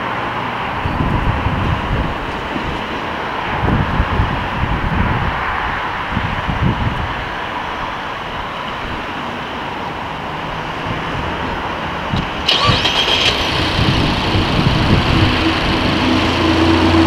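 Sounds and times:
car engine starting and idling: 12.1 - 17.0
starter motor whine: 12.4 - 17.0.

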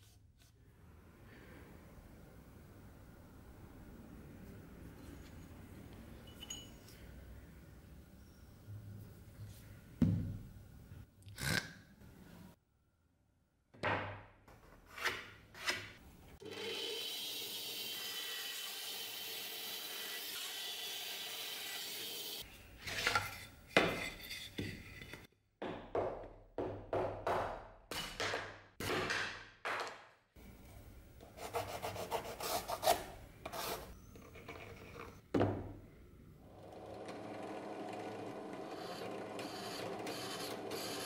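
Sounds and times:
band saw cutting wood: 16.4 - 22.4, 36.8 - 41.0.

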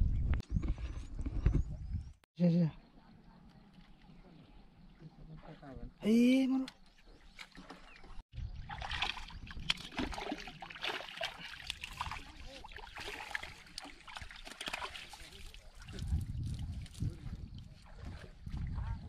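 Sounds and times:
fish thrashing and splashing: 7.5 - 16.0.

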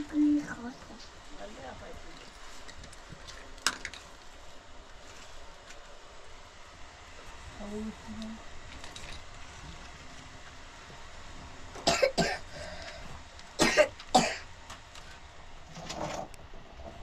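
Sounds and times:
person coughing: 11.8 - 12.5, 13.6 - 14.5.

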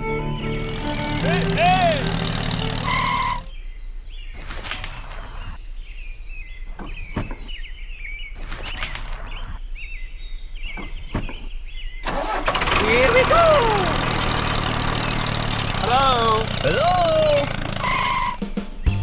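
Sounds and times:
small birds chirping: 0.0 - 19.0.

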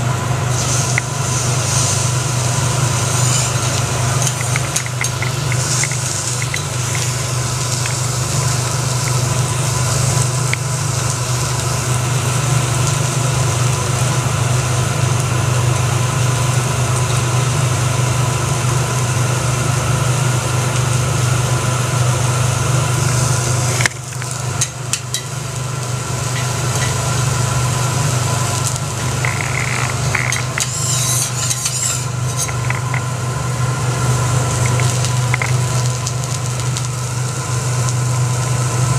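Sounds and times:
food sizzling on griddle: 0.0 - 38.9
low hum: 2.2 - 12.3, 22.8 - 38.9
metal spatula scraping and tapping: 29.3 - 33.0.

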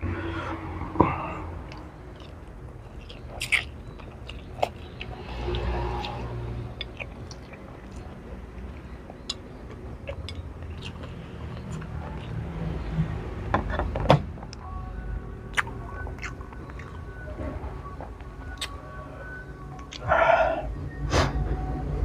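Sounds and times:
person chewing noodles: 1.7 - 12.6, 15.5 - 17.0.

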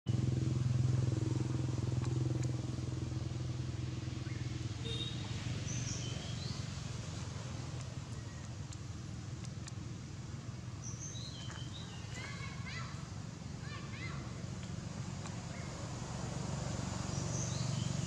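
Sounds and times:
vehicle engine humming: 0.1 - 18.0
bird chirps: 4.2 - 6.6, 10.8 - 12.8.

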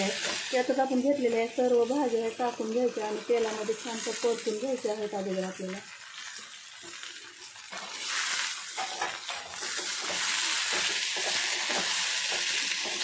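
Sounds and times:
vegetables sizzling in hot oil: 0.0 - 13.0
metal spatula scraping a pan: 7.6 - 13.0.

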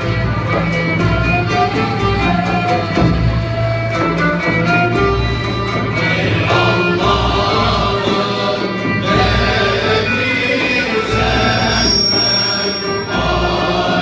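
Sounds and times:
violin: 0.0 - 14.0
male choir singing: 5.9 - 14.0
end-blown flute: 10.6 - 14.0.

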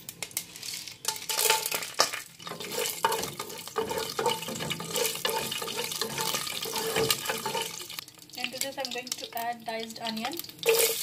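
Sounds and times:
spices sizzling in hot ghee: 0.0 - 11.0
wooden spatula knocking and scraping: 1.0 - 7.8.

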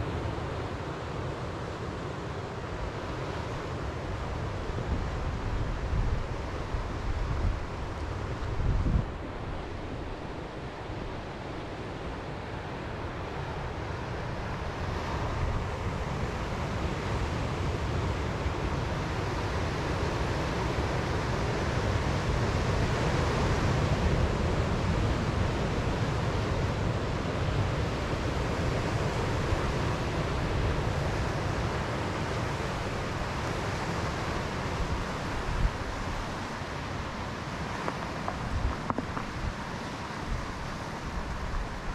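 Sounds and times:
ocean surf breaking on beach: 0.0 - 41.9
wind buffeting microphone: 4.5 - 11.3, 28.8 - 41.9.

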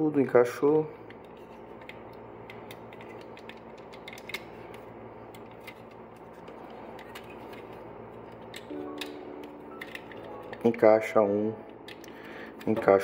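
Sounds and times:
plastic toy parts clicking: 1.8 - 4.5, 9.8 - 10.7.

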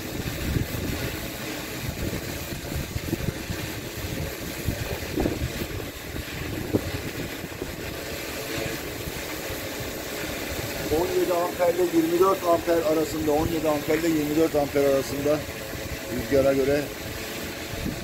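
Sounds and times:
drone propellers humming: 0.0 - 18.0
wind buffeting microphone: 0.0 - 18.0.

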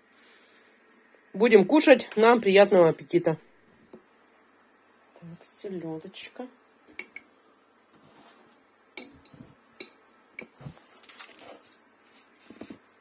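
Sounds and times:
fork clinking on glass bowl: 9.0 - 10.5
handling noises: 10.4 - 13.0.

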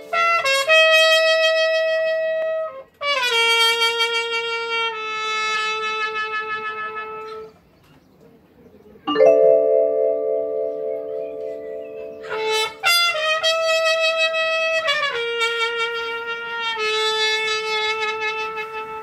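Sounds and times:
sustained piano chord: 9.1 - 13.0
trumpet slow melody: 9.1 - 19.0.

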